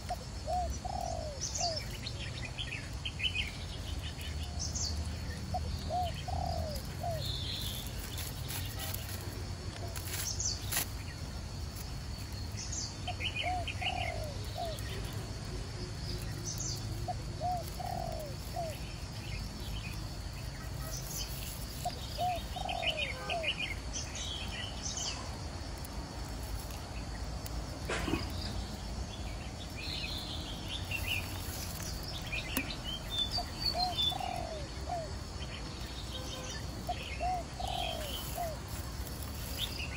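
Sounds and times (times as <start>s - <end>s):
dove cooing: 0.0s - 1.9s, 5.5s - 7.9s, 13.1s - 15.3s, 16.7s - 19.4s, 20.7s - 23.5s, 32.0s - 35.3s, 36.9s - 39.9s
small birds chirping: 0.0s - 39.9s.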